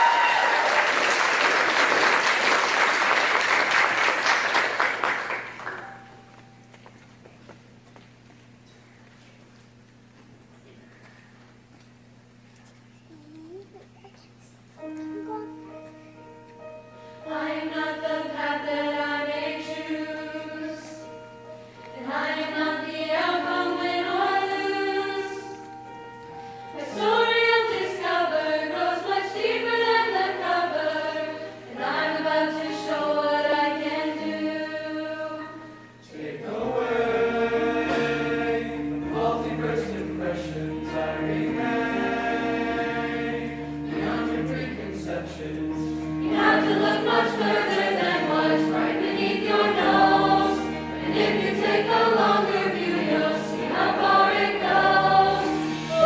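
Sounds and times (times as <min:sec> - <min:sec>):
mixed choir singing: 0:17.2 - 0:25.7, 0:26.6 - 0:56.0.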